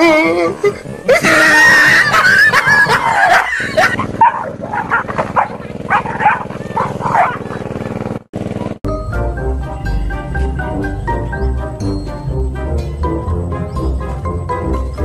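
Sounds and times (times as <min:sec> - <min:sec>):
dog yelping: 0:01.9 - 0:08.1
dog barking sharply: 0:03.1 - 0:07.6.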